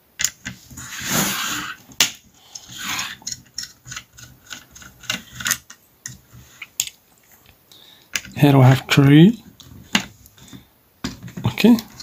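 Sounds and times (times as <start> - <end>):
brief scraping rubs: 0.8 - 1.8.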